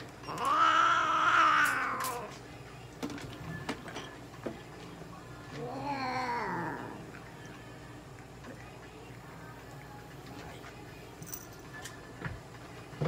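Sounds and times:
cat meowing: 0:00.3 - 0:02.3.

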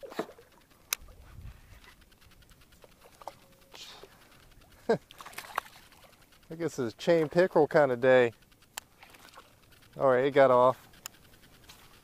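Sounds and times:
fish splashing in water: 0:02.7 - 0:06.4, 0:08.9 - 0:09.9.

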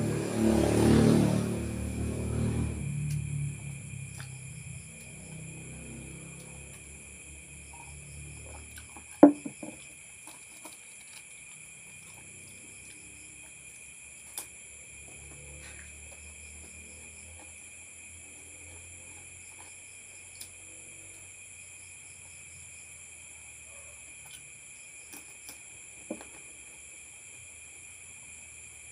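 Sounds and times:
insects trilling: 0:00.0 - 0:28.9
glass set down on table: 0:09.2 - 0:09.8.

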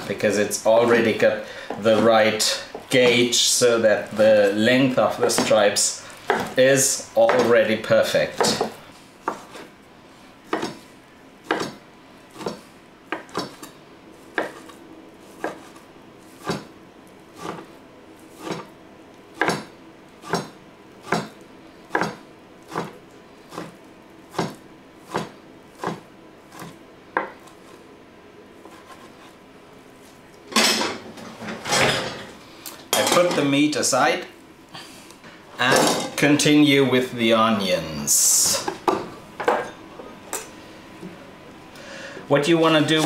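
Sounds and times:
knife cutting meat on plastic board: 0:11.5 - 0:11.8, 0:15.4 - 0:15.8, 0:17.4 - 0:17.7.

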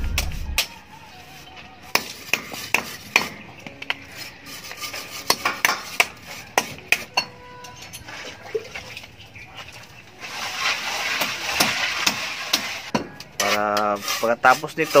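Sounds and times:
trowels scraping wet mortar: 0:01.1 - 0:07.2, 0:09.5 - 0:15.0.

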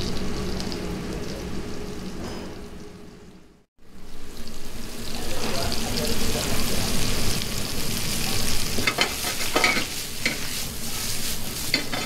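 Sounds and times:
mushrooms sizzling in a pan: 0:00.0 - 0:02.2, 0:03.8 - 0:12.0
utensil scraping a pan: 0:08.7 - 0:12.0.

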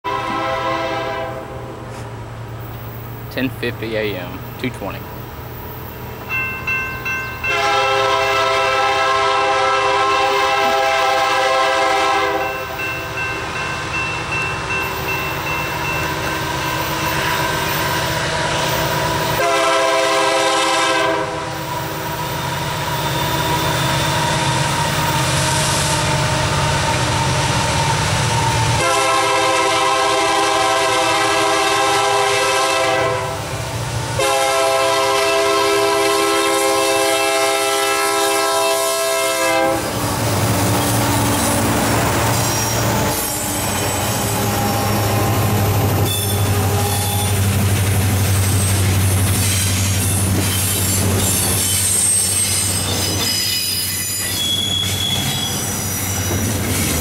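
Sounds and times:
locomotive air horn chord: 0:00.0 - 0:01.8, 0:07.4 - 0:12.8, 0:19.0 - 0:22.1, 0:28.7 - 0:33.5, 0:34.2 - 0:40.0, 0:42.3 - 0:47.4
locomotive engine rumbling low: 0:39.8 - 0:51.8.

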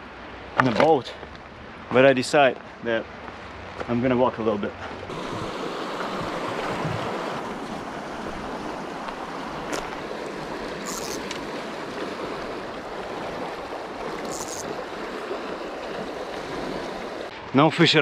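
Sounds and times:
river rushing over rocks: 0:05.1 - 0:17.3.

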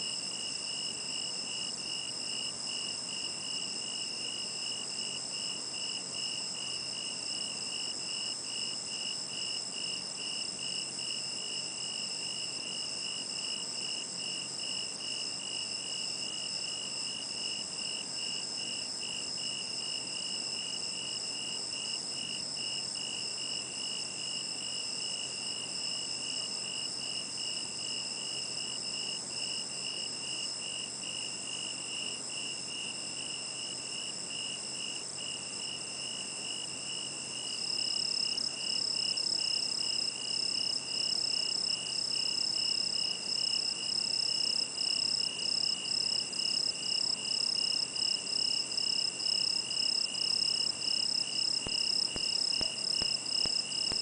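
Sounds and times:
insect chirping in even pulse: 0:50.3 - 0:54.0.

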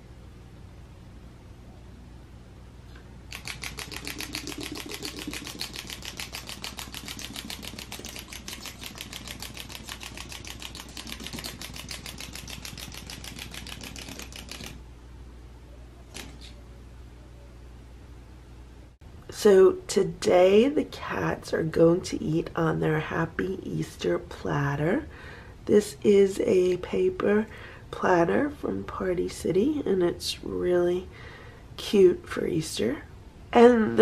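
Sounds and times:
toy mechanism clicking: 0:03.3 - 0:14.8.

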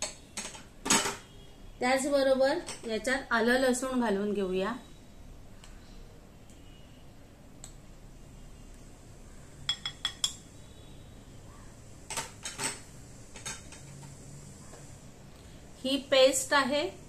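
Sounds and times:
metal spoon clinking on glass bowl: 0:09.7 - 0:10.5.

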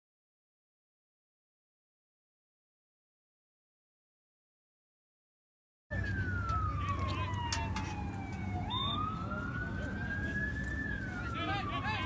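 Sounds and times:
siren wailing: 0:05.9 - 0:12.0.

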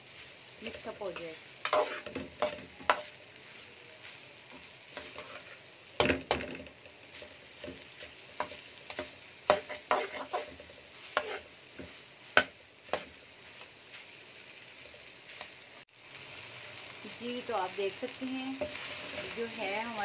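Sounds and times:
food sizzling in a pan: 0:00.0 - 0:20.0
metal spoon scraping a pan: 0:00.6 - 0:13.7, 0:18.6 - 0:19.5.

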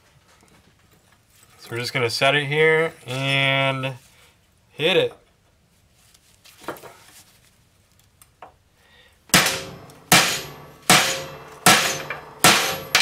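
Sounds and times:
hammer striking steel punch: 0:09.3 - 0:13.0.

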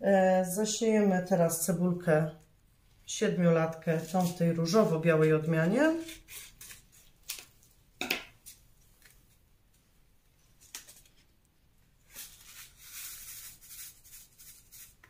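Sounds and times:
paper packet rustling: 0:03.9 - 0:04.8.

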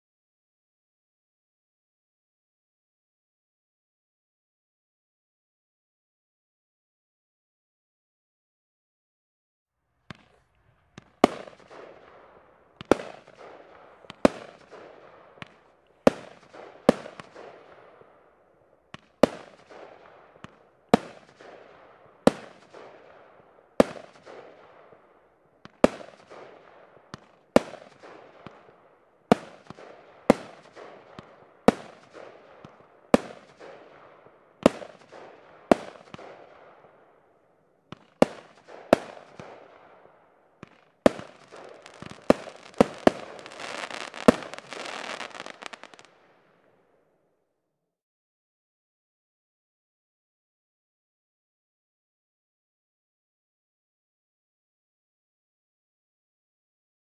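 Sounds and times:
firework bangs with crackle: 0:10.1 - 0:18.2, 0:18.9 - 0:37.1, 0:37.9 - 0:46.4.

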